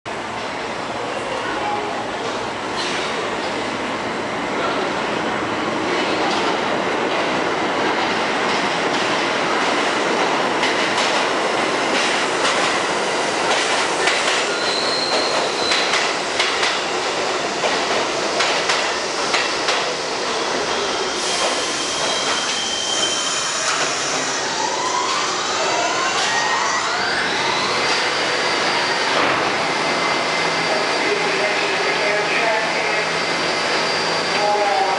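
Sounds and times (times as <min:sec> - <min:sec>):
subway train rumble: 0:00.1 - 0:34.9
high wheel squeals: 0:14.4 - 0:16.0, 0:20.8 - 0:29.3
train whines rising in pitch: 0:19.2 - 0:34.9.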